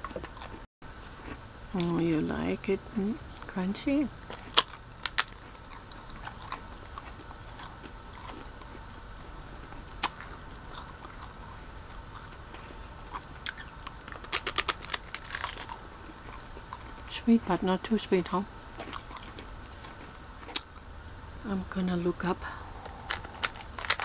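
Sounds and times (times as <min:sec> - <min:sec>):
quiet chewing: 0:00.0 - 0:02.3, 0:04.2 - 0:17.1, 0:18.7 - 0:21.2, 0:22.6 - 0:24.0
waffle cone crunching: 0:04.2 - 0:17.1, 0:22.8 - 0:24.0.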